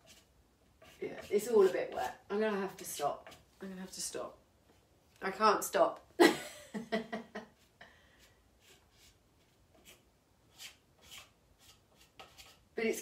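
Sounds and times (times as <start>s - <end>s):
plastic scraper scraping wet paint: 0.0s - 4.1s, 9.8s - 12.7s.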